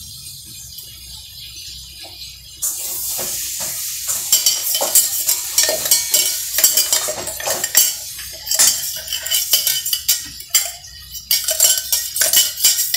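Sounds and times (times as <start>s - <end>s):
sizzling hiss: 2.6s - 10.2s
spoon scraping steel jar: 2.6s - 12.9s
metallic clinks: 4.1s - 12.9s.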